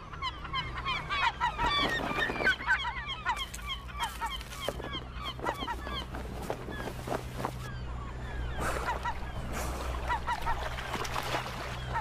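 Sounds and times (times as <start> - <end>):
gulls calling: 0.0 - 12.0
low steady hum: 2.5 - 12.0.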